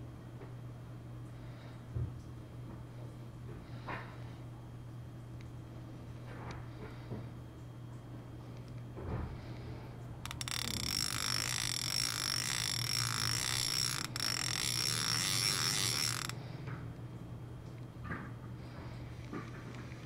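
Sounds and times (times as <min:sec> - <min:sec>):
fishing reel drag clicking: 0:10.3 - 0:16.4.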